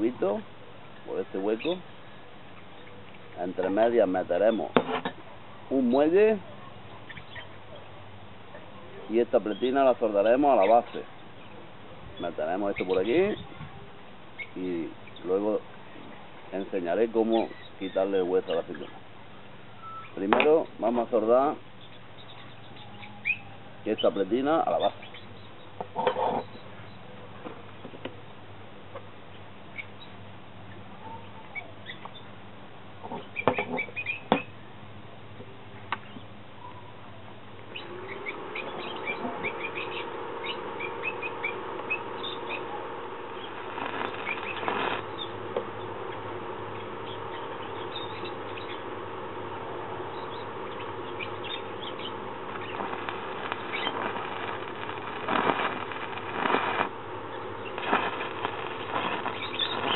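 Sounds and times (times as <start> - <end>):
small birds chirping: 0.0 - 32.4, 33.0 - 34.6, 35.3 - 59.9
steady hum: 0.0 - 59.9
arc welder crackling: 37.5 - 59.9.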